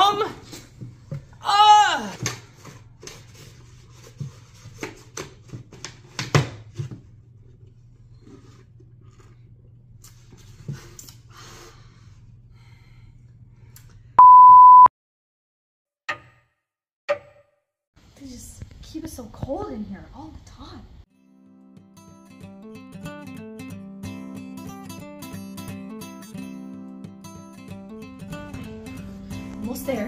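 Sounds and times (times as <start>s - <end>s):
electronic beep: 14.2s - 14.9s.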